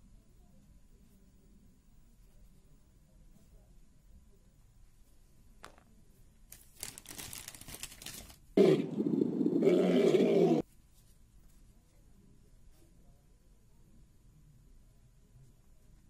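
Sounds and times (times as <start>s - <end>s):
faint crackling rustle: 6.1s - 8.5s
lion roaring: 8.6s - 10.6s.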